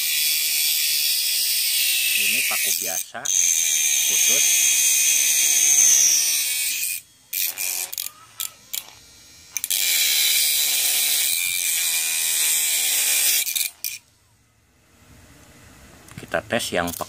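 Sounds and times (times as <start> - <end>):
mini grinder screeching on metal: 0.0 - 14.0, 16.8 - 17.0.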